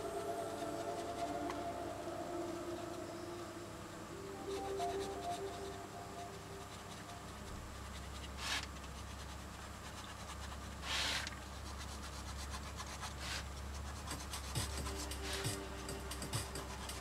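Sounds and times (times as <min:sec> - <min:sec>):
faint low hum: 0:00.0 - 0:17.0
crayon rubbing on paper: 0:04.4 - 0:17.0.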